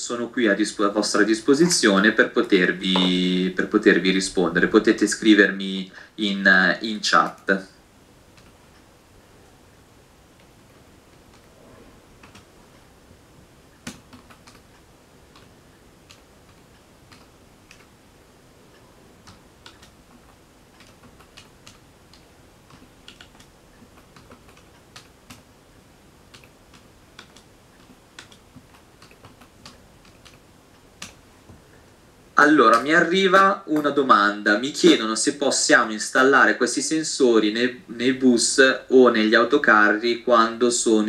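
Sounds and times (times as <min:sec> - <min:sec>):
keyboard typing clicks: 0:12.2 - 0:12.5, 0:13.8 - 0:18.0, 0:19.2 - 0:25.5, 0:26.3 - 0:30.4.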